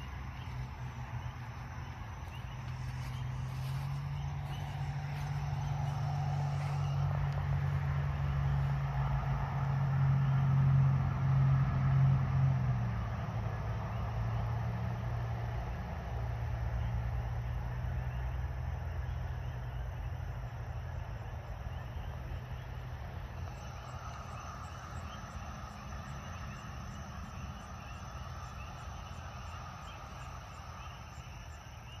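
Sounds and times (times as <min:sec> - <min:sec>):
low rumble: 0:00.0 - 0:16.9.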